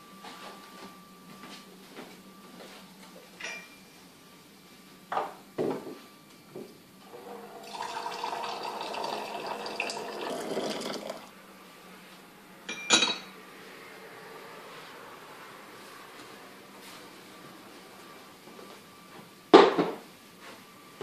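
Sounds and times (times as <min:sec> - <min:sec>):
hot water pouring into teapot: 0:07.1 - 0:11.3.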